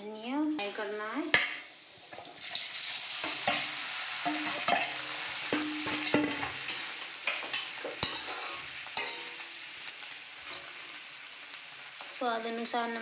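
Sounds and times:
potatoes sizzling in hot oil: 0.0s - 13.0s
metal spoon scraping a pan: 2.2s - 11.0s.

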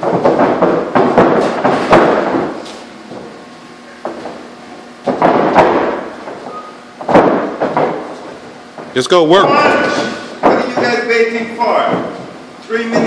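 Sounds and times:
boxing gloves landing punches: 0.0s - 3.3s, 5.0s - 6.4s, 7.0s - 8.4s.

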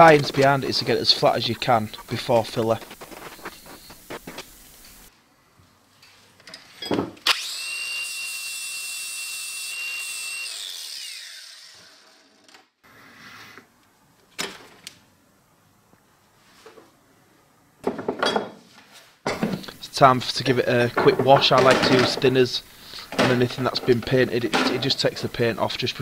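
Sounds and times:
power tool whining: 7.2s - 8.5s.

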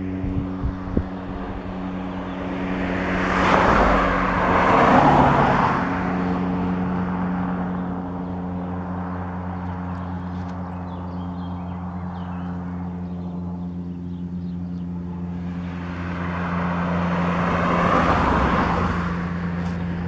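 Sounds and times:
road vehicle passing: 0.0s - 20.0s.

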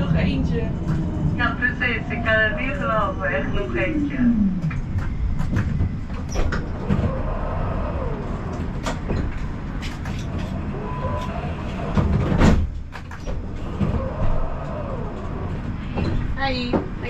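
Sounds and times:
tram clunk: 0.0s - 17.0s
tram running on rails: 0.0s - 17.0s.

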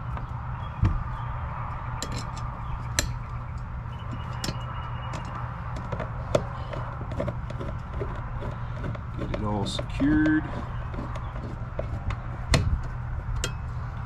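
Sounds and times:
low rumble: 0.0s - 9.2s.

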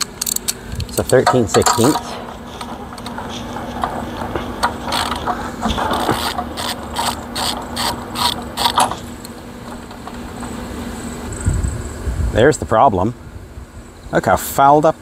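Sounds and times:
socket ratchet clicking: 6.1s - 10.0s.

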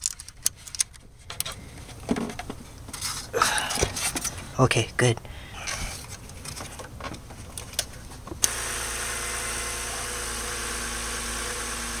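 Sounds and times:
car engine idling: 8.4s - 12.0s.

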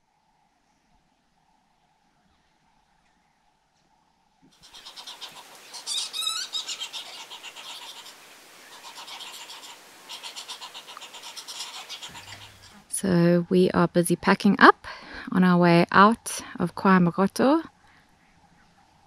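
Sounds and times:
faint steady hum: 0.0s - 19.0s
birds chirping and trilling: 4.6s - 12.9s.

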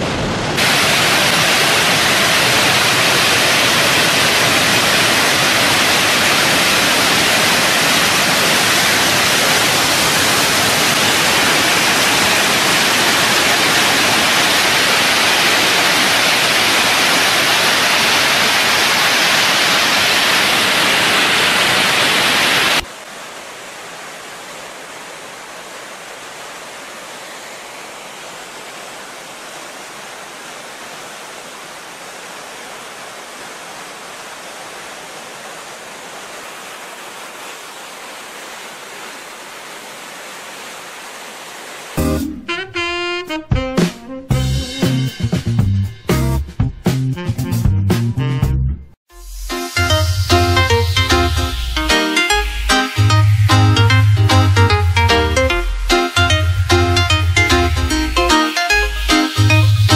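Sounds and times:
water spray rushing: 0.0s - 22.9s
high-speed water jet rushing: 0.0s - 23.0s.

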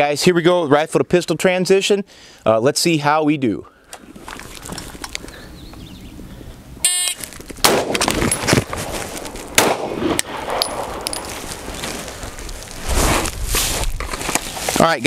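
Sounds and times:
shot timer beep: 6.8s - 7.2s
rifle dropped on sling: 6.9s - 9.8s
pistol shot: 7.6s - 8.2s, 9.6s - 11.0s
rifle shot: 7.6s - 8.4s, 9.5s - 11.0s.

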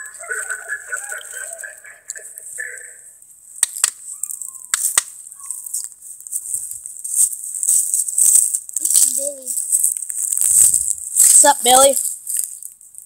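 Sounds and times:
camera rustling and scuffling: 4.0s - 13.0s.

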